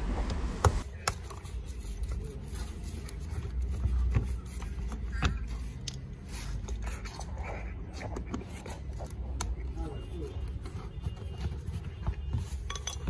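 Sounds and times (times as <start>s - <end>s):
steady low rumble: 0.0s - 0.8s.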